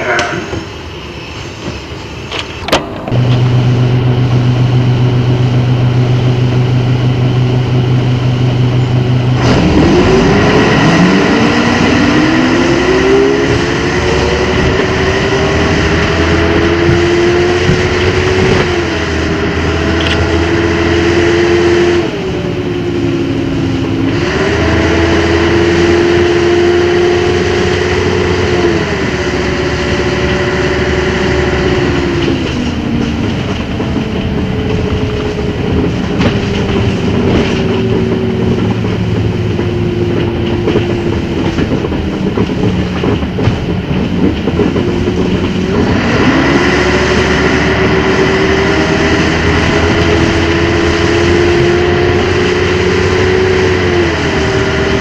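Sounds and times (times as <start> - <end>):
bus diesel engine idling: 0.0 - 9.4, 22.0 - 25.3, 26.2 - 55.0
bus accelerating: 0.0 - 55.0.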